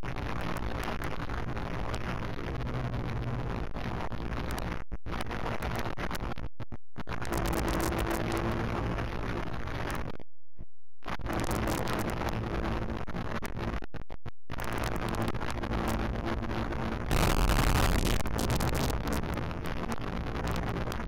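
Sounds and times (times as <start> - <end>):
recording crackle: 0.0 - 10.3, 11.0 - 21.0.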